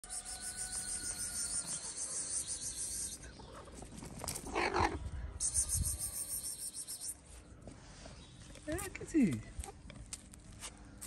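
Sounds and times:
insects chirring: 0.0 - 3.2, 5.4 - 7.1.

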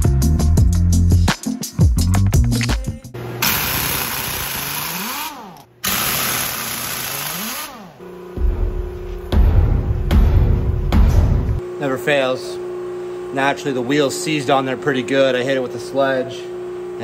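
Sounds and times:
pneumatic impact wrench bursts: 3.4 - 8.0.

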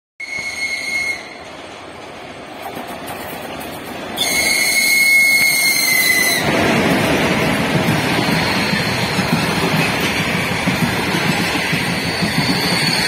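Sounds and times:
locomotive high-pitched whistle: 0.2 - 1.5, 4.2 - 6.5, 8.1 - 9.3, 11.8 - 13.0
train rolling rumble: 0.2 - 13.0.

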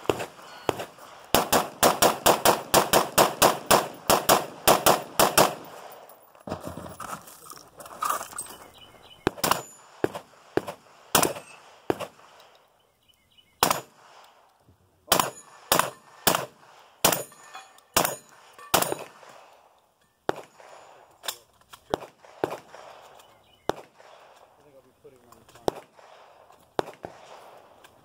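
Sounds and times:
gunshots: 0.0 - 6.1, 9.2 - 12.5, 13.6 - 14.4, 15.1 - 19.7, 20.3 - 24.6, 25.5 - 27.9.

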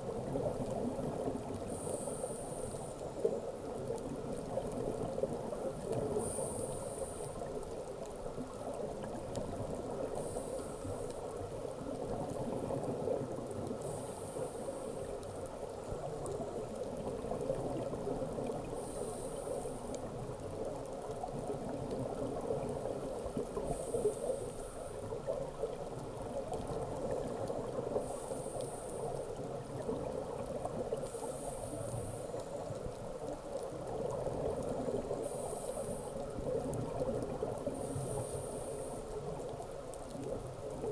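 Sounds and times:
underwater bubbling: 0.0 - 40.9
diver regulator breathing hiss: 1.6 - 3.5, 6.1 - 7.8, 10.0 - 11.3, 13.8 - 15.2, 18.7 - 20.1, 23.6 - 25.0, 27.9 - 29.4, 31.0 - 32.6, 34.8 - 36.5, 37.6 - 39.4.

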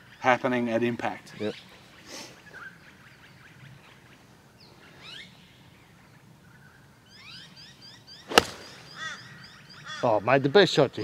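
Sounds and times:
birds chirping: 0.0 - 11.0
rising bird calls: 1.3 - 10.6.

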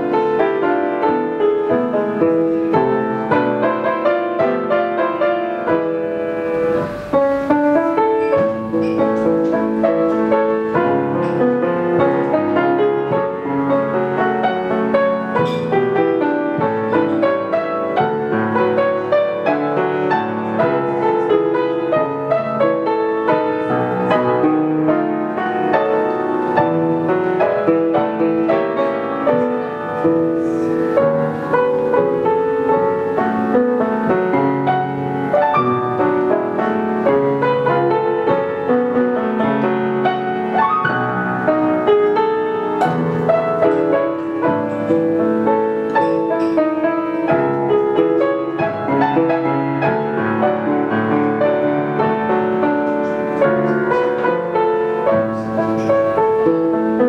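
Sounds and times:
solo piano playing: 0.0 - 57.0.

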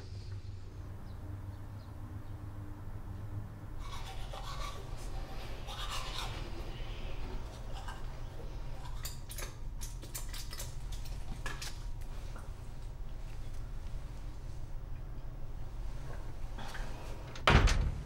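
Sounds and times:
toothbrush scrubbing teeth: 3.8 - 11.8.

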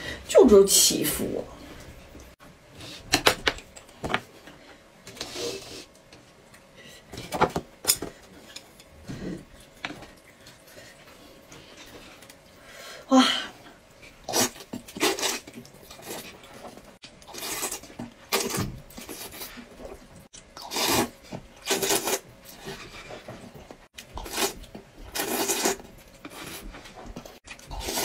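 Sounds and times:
person slurping noodles: 24.2 - 26.6.

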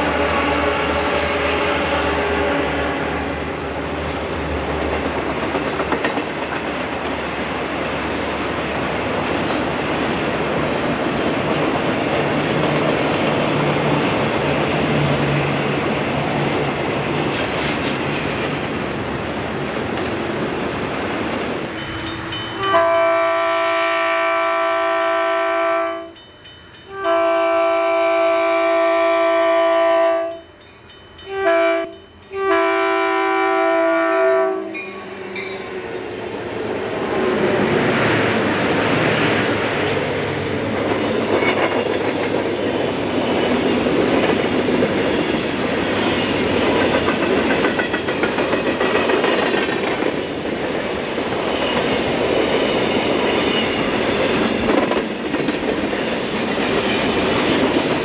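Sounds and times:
freight train wheels rumbling: 0.0 - 58.0
locomotive air horn blasts: 22.6 - 26.2, 26.9 - 30.4, 31.3 - 34.9.

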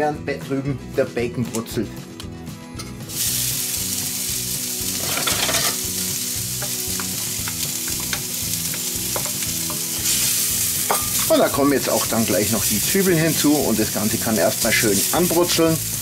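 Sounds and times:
bacon sizzling in a skillet: 3.0 - 16.0.

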